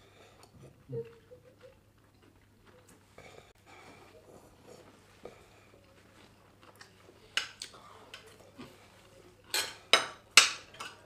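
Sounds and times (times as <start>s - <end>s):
chewing and mouth sounds: 0.4s - 3.5s, 5.8s - 8.7s.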